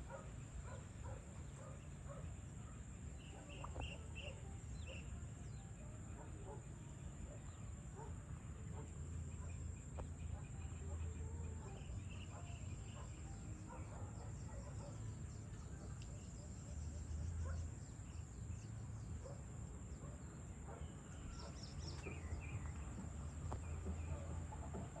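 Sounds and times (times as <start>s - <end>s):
bird chirps: 3.2s - 5.2s, 8.8s - 19.4s.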